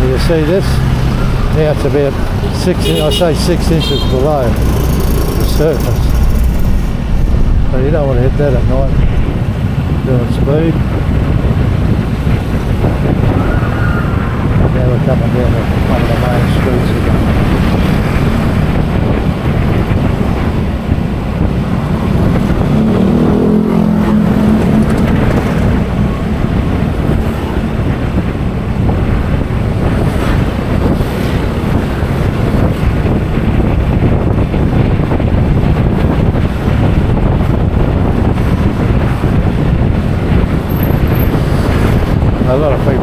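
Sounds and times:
motorbike engine rumble: 0.0s - 13.2s
wind buffeting microphone: 0.0s - 43.0s.

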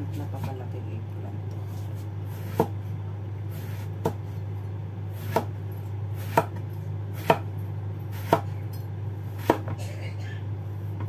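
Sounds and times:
steady low hum: 0.0s - 11.0s
knife slicing eggplant: 1.7s - 2.8s, 5.2s - 5.6s, 6.2s - 6.6s, 7.2s - 7.5s, 8.1s - 8.5s.

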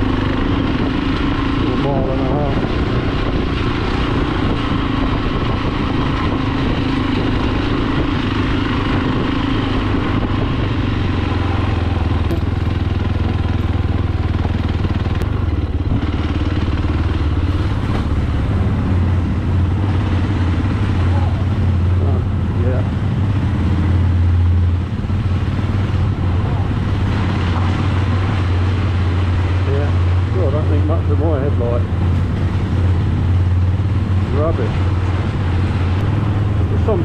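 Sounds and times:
motorcycle engine running: 0.0s - 37.0s.

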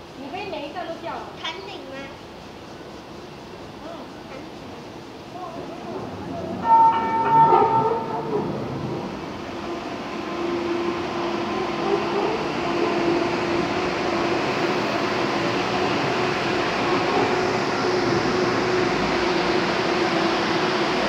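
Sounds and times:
tram wheels rumbling: 0.0s - 21.0s.

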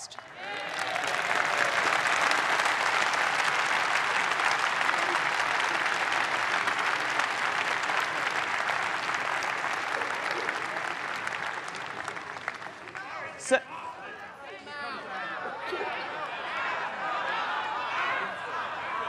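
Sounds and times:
large audience applauding: 0.0s - 13.6s.

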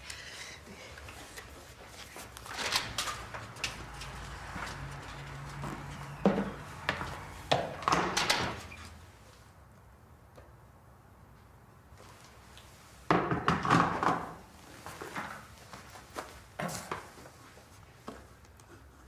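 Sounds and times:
objects knocking and clunking: 2.4s - 8.5s.

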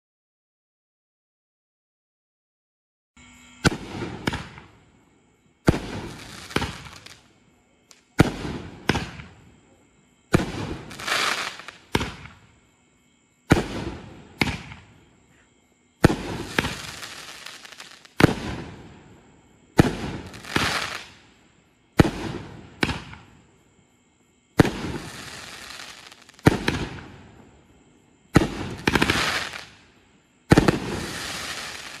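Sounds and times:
firework launch thumps: 3.6s - 4.8s, 5.6s - 7.0s, 8.2s - 9.4s, 11.9s - 12.4s, 13.5s - 14.9s, 22.0s - 23.3s
firework shell bursts crackling: 5.6s - 7.2s, 19.8s - 21.2s.

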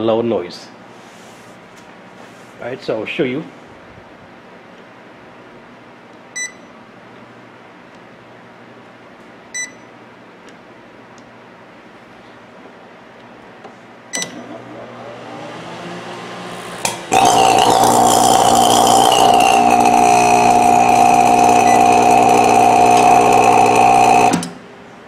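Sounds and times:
microwave oven humming: 14.0s - 25.0s
microwave oven clicking on: 14.1s - 14.6s, 16.8s - 24.6s
loud electrical buzzing and sparking: 16.8s - 24.6s.

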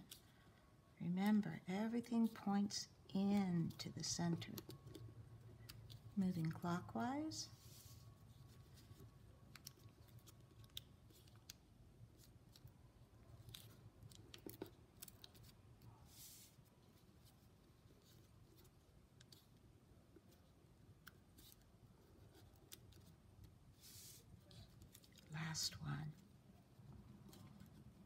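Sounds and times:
low room hum: 0.0s - 28.0s
paper being folded and creased: 13.3s - 19.6s, 20.2s - 25.4s.

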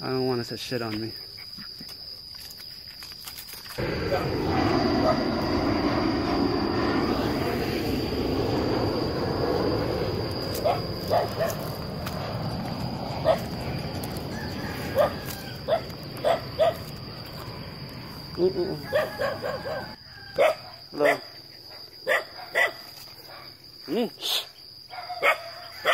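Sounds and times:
jet airliner rumbling overhead: 3.8s - 20.0s
dog barking: 10.6s - 11.6s, 15.7s - 16.8s, 18.9s - 21.3s, 22.0s - 23.5s, 24.9s - 25.9s.

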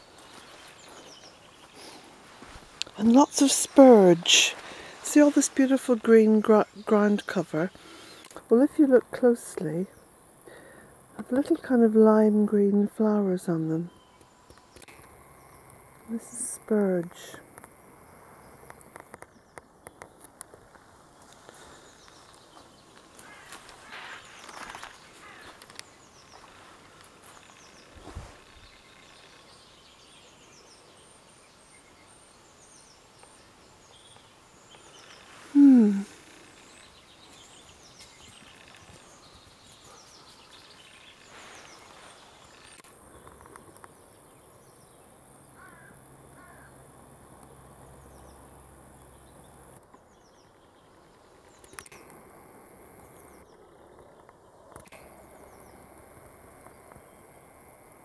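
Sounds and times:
rustles: 0.0s - 9.2s, 13.9s - 44.3s
small birds chirping: 0.0s - 58.0s.

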